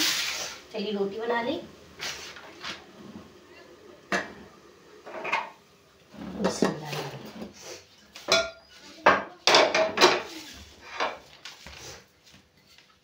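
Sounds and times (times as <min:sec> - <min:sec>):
metal cookware clanking: 0:05.0 - 0:07.5, 0:08.2 - 0:11.2.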